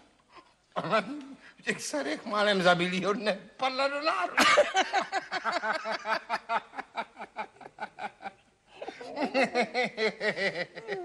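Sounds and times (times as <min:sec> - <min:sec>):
man laughing heartily: 0:04.4 - 0:11.0.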